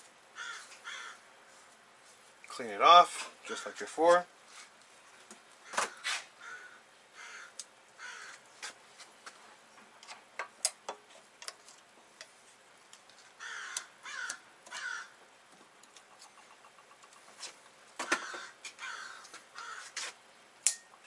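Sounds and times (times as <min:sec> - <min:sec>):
metallic clicks of pliers: 0:20.6 - 0:20.9.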